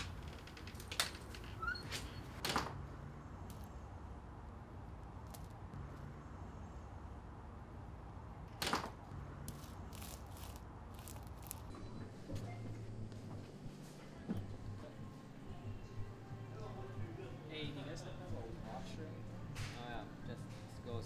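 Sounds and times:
light footsteps: 9.5 - 14.8.

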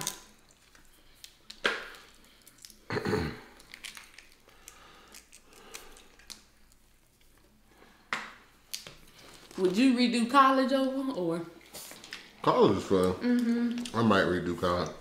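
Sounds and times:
crab shells cracking: 0.0 - 7.5, 8.7 - 9.6.

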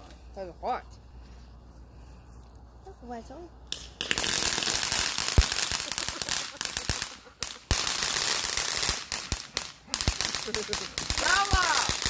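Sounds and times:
firework crackling: 3.7 - 12.0
sizzling hiss: 4.0 - 12.0.

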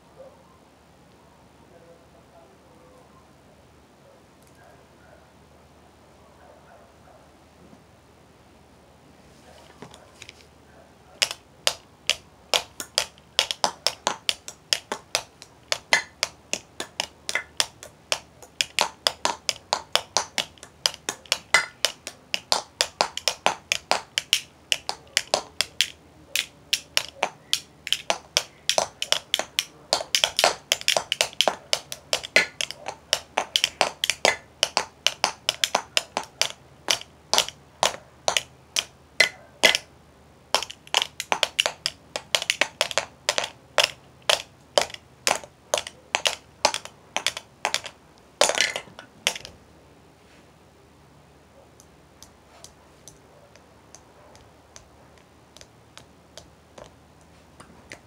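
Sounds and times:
drumsticks tapping hard surface: 11.2 - 39.9, 40.6 - 49.5.

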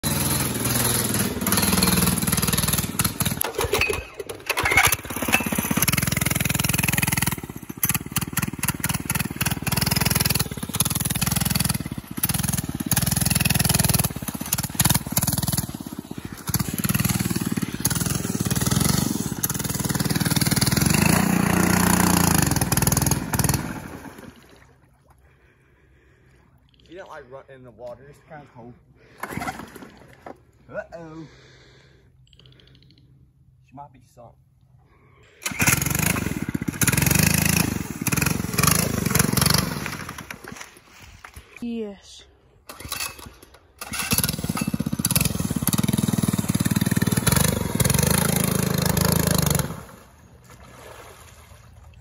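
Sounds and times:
mini bike engine revving: 0.0 - 24.4, 35.4 - 40.7, 42.7 - 50.2
person talking: 41.6 - 42.4.

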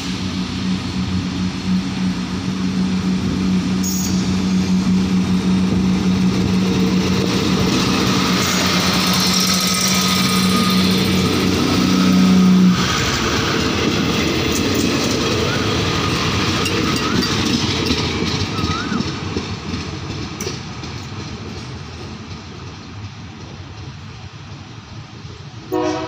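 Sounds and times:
train engine drone: 0.0 - 26.0
train wheels clattering on rails: 0.0 - 26.0.

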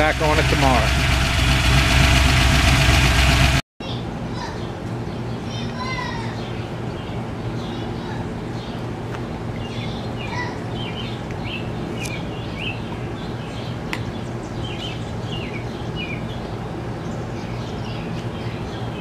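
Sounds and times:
birds chirping: 0.0 - 3.1, 3.8 - 19.0
car engine idling: 0.0 - 3.6.

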